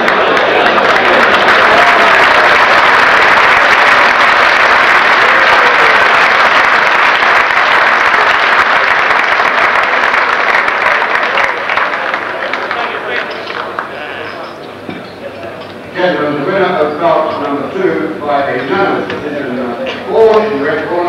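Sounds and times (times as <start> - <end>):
audience applauding: 0.0 - 14.5.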